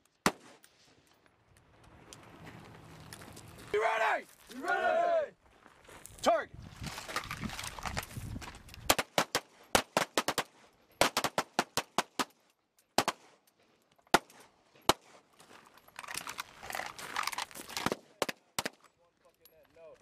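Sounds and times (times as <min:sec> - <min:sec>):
pistol shots: 0:08.9 - 0:12.4.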